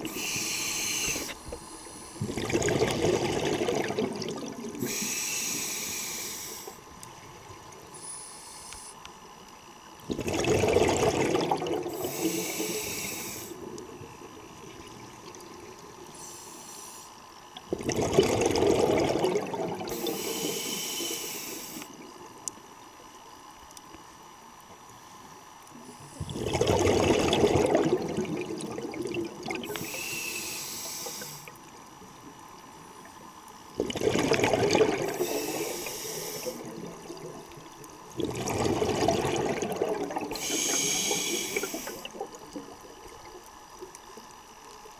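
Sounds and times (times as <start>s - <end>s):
hissing regulator inhalations: 0.0s - 2.4s, 4.8s - 6.9s, 7.9s - 9.2s, 11.9s - 13.6s, 16.1s - 17.2s, 19.9s - 21.9s, 29.6s - 31.6s, 35.0s - 36.8s, 40.3s - 42.2s
bubbling regulator exhalations: 0.0s - 5.8s, 10.1s - 13.6s, 17.6s - 20.9s, 26.2s - 30.0s, 33.8s - 42.9s.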